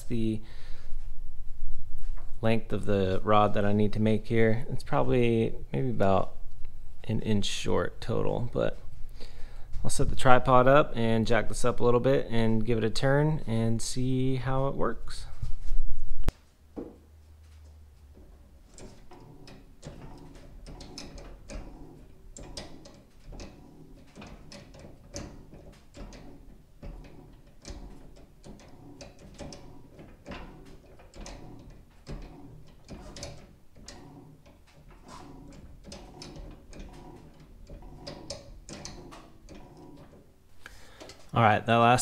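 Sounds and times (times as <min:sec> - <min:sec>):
steering joints clicking and clunking: 0:17.6 - 0:41.3.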